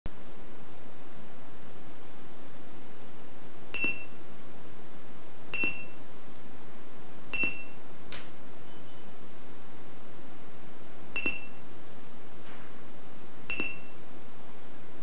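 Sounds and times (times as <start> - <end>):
high electronic beeps: 3.8 - 4.2, 5.6 - 6.0, 7.4 - 7.8, 11.2 - 11.6, 13.5 - 14.0.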